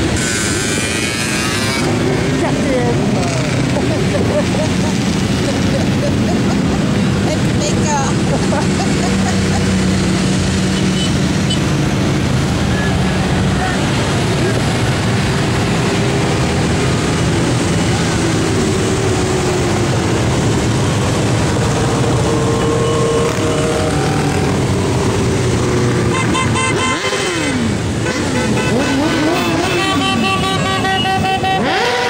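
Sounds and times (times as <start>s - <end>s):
horn toots: 0.0s - 2.1s, 26.0s - 32.0s
motorcycle engines revving: 0.0s - 32.0s.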